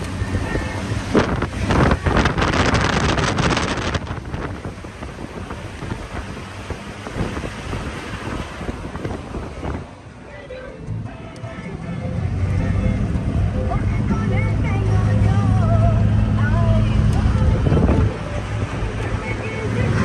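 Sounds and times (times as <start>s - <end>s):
low vehicle rumble: 0.0s - 20.0s
wind buffeting microphone: 0.2s - 10.1s, 17.2s - 19.2s.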